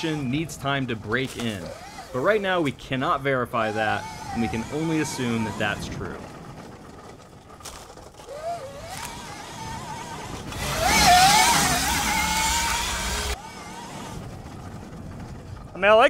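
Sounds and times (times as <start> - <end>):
electric motor whine: 0.0 - 2.4, 3.6 - 7.0, 8.2 - 14.7.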